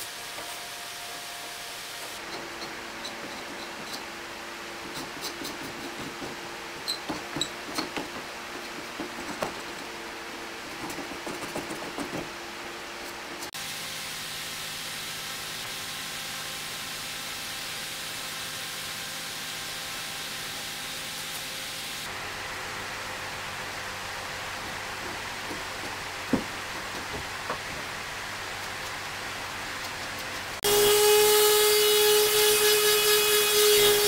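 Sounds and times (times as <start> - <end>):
steady shop hum: 0.0 - 34.0
paint scraper scraping varnish: 2.1 - 9.9.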